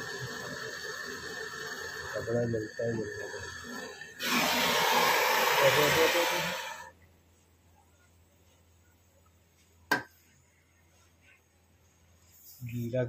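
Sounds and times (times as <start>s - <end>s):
gas torch flame hissing: 0.0s - 6.9s.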